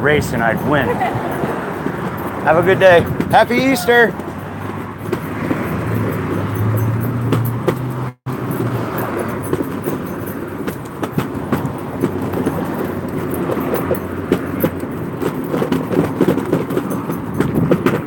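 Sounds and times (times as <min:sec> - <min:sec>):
wheels rolling on concrete: 0:00.0 - 0:18.0
small clicks and rattles: 0:08.5 - 0:18.0.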